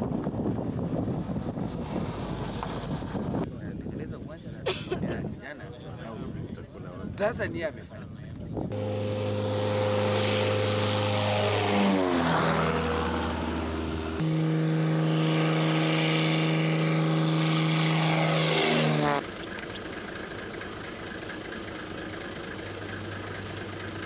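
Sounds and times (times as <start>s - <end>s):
propeller aircraft flying past: 0.0s - 3.6s, 8.6s - 24.0s
steady hum: 8.7s - 23.4s.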